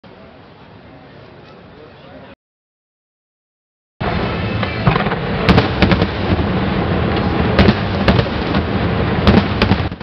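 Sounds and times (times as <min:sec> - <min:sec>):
distant firework rumble: 0:04.0 - 0:10.0
loud firework bangs: 0:04.0 - 0:10.0.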